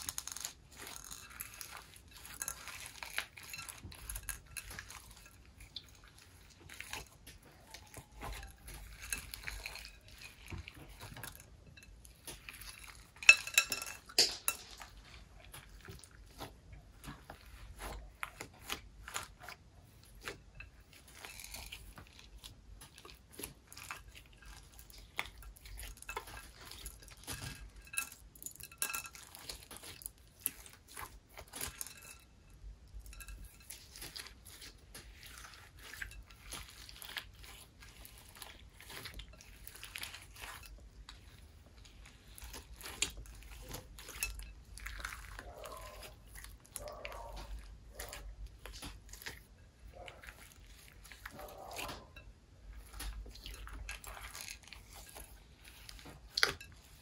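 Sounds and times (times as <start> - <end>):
utensil clinking: 7.6 - 15.0.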